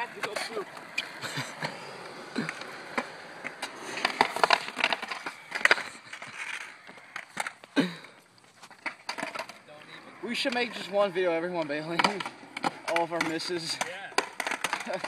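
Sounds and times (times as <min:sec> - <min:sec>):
skateboard clacking on concrete: 0:00.0 - 0:15.0
skateboard wheels rolling on concrete: 0:00.0 - 0:15.0.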